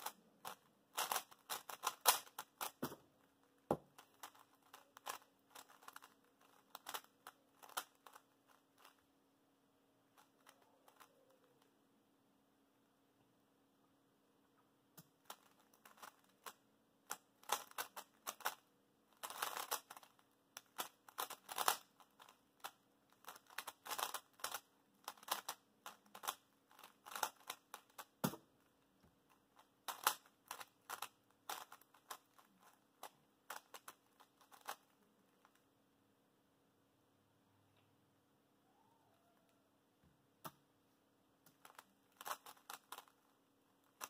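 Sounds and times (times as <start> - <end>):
puzzle cube clicking: 0.0 - 3.0, 3.9 - 9.0, 17.1 - 18.6, 19.2 - 28.4, 29.3 - 35.6, 41.5 - 43.2.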